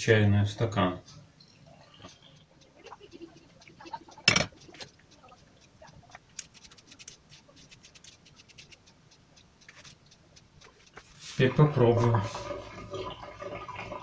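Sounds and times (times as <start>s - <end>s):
drink being strained: 11.3s - 14.0s.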